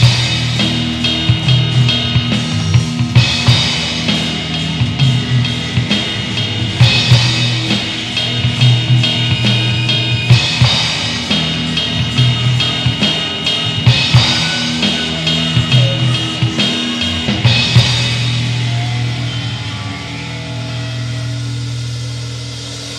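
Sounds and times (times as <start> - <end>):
live rock band: 0.0 - 22.9.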